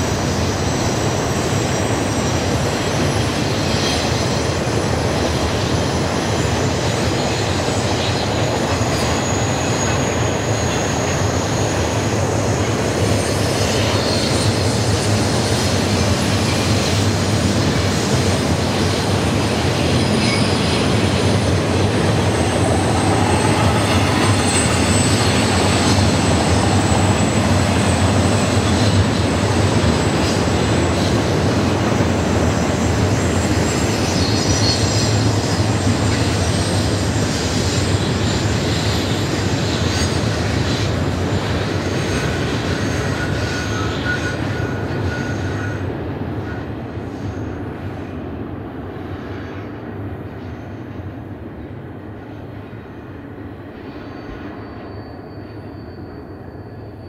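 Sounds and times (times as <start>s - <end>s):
train wheels rumbling on rails: 0.0s - 57.0s
thin wheel squeals: 54.0s - 57.0s.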